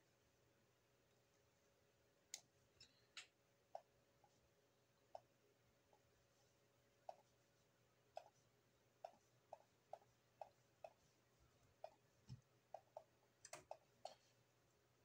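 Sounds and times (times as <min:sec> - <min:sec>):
computer mouse clicks: 0:11.8 - 0:14.2.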